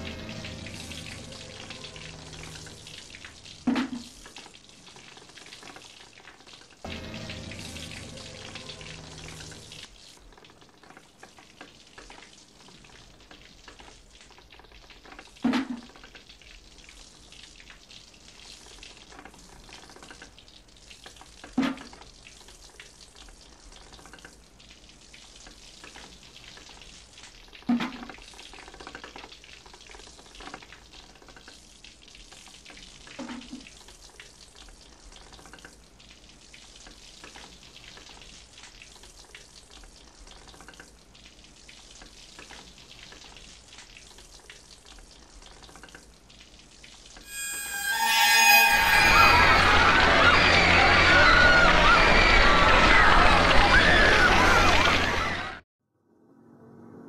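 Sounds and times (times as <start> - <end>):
held low chord: 0.0 - 3.3, 6.9 - 9.8.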